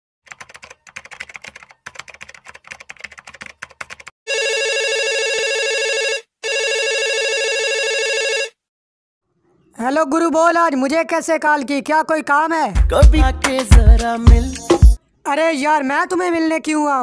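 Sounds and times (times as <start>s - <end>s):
keyboard typing clicks: 0.3s - 4.1s
telephone ringing: 4.3s - 8.6s.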